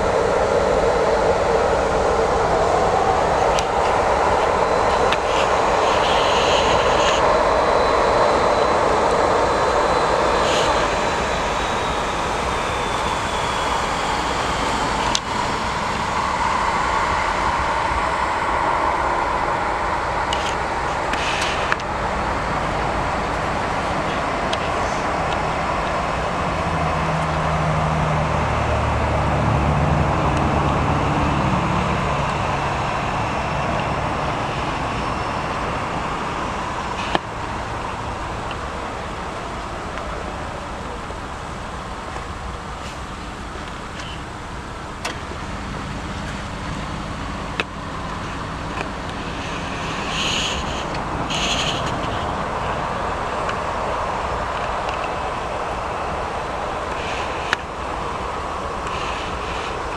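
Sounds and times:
jet engines droning: 0:00.0 - 0:59.9
low hum: 0:00.0 - 0:59.9.

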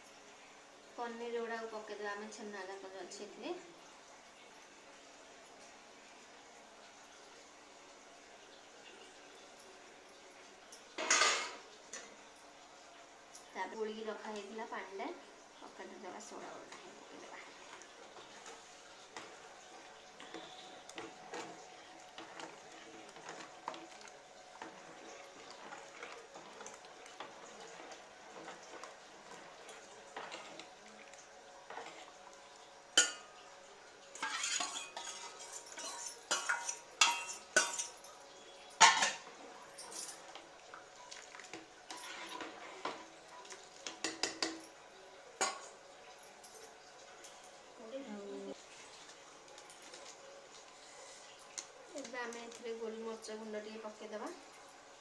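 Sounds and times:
spoon clinking against metal pot: 0:34.2 - 0:38.0.

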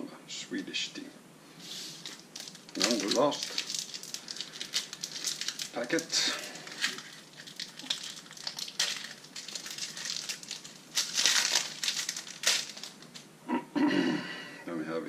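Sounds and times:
foil wrapper tearing and crinkling: 0:02.0 - 0:13.3.

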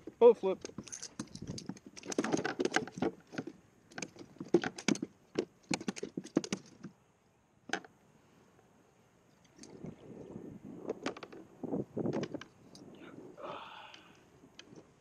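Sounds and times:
clicks and taps in plastic kayak: 0:00.0 - 0:07.0, 0:10.9 - 0:11.4
metal tackle clinking: 0:00.6 - 0:03.1.

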